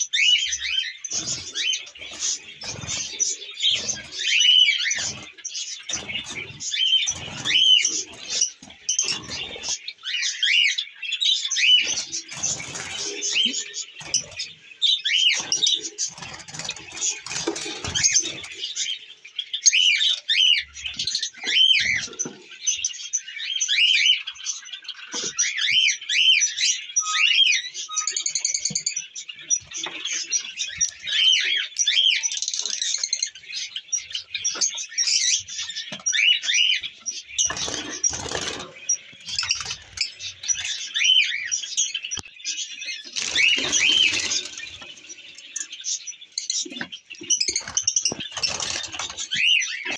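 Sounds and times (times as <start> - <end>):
parrots chirping: 0.0 - 49.9
knocks and rustles at cages: 1.1 - 9.8, 11.8 - 14.5, 15.3 - 18.6, 37.4 - 40.8.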